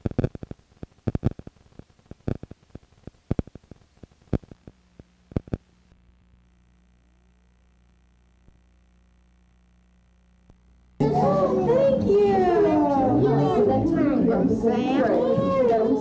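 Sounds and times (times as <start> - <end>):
faint hum with high tones: 0.0 - 16.0
vhs tape crackling clicks: 0.1 - 5.7.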